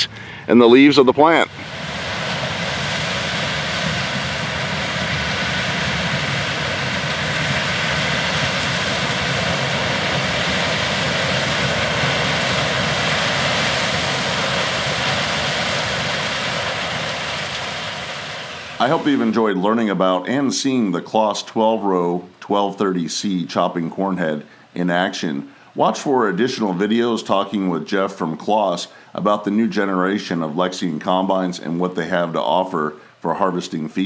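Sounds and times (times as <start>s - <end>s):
combine harvester machinery drone: 0.0s - 23.0s.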